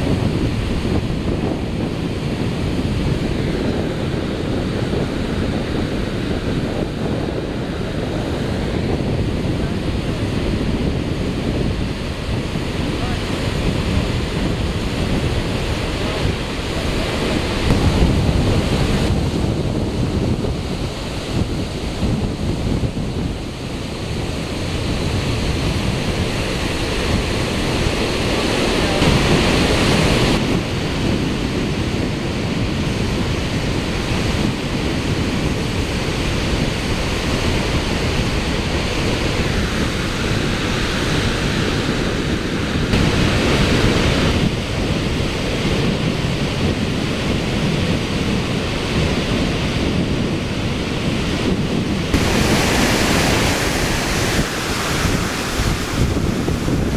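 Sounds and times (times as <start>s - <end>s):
wind buffeting microphone: 0.0s - 56.9s
waterfall rushing: 25.5s - 30.4s, 36.4s - 45.4s, 50.4s - 56.9s.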